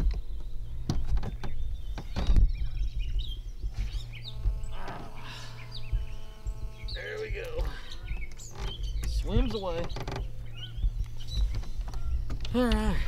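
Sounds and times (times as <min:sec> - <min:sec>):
songbirds chirping: 0:00.0 - 0:13.0
steady low hum: 0:00.0 - 0:13.0
knocks on a boat: 0:00.8 - 0:03.1, 0:05.9 - 0:12.6.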